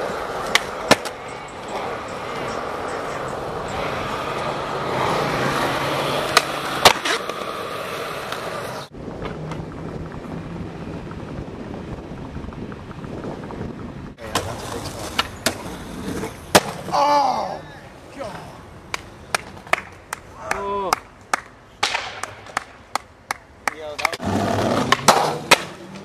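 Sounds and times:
skateboard clacks: 0:00.0 - 0:07.6, 0:14.2 - 0:16.8, 0:18.9 - 0:26.0
skateboard wheels rolling: 0:00.0 - 0:26.0
traffic: 0:00.0 - 0:26.0.

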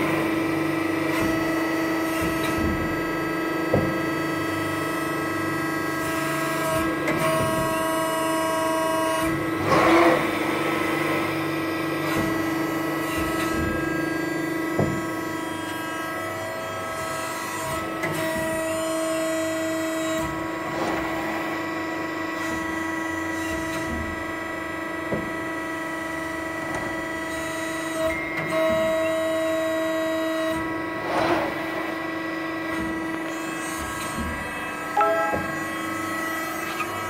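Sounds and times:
high-pitched machine whine: 0:34.8 - 0:36.8.

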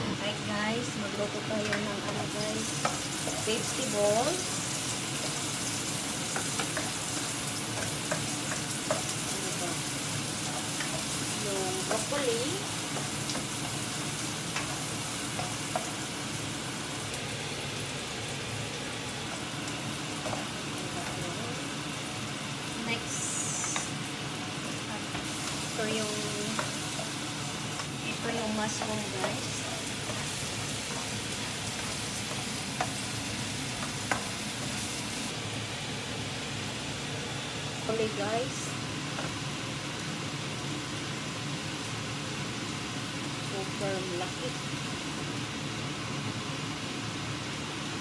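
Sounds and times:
vegetables sizzling in a pan: 0:00.0 - 0:48.0
utensil clicking against pan: 0:06.3 - 0:09.2, 0:14.4 - 0:16.1, 0:33.7 - 0:34.4.

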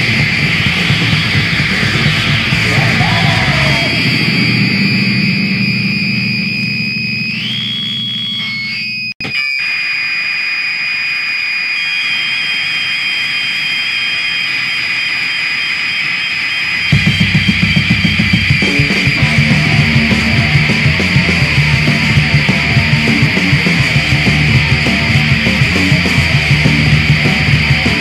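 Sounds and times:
pounding drums: 0:00.0 - 0:04.8, 0:16.9 - 0:28.0
bass: 0:00.0 - 0:09.1, 0:16.9 - 0:28.0
distorted guitar: 0:00.0 - 0:28.0
droning wall of noise: 0:00.0 - 0:28.0.

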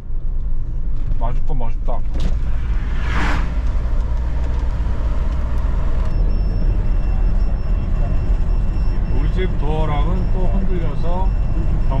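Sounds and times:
road and engine rumble: 0:00.0 - 0:12.0
vehicle passing whoosh: 0:02.2 - 0:06.1.

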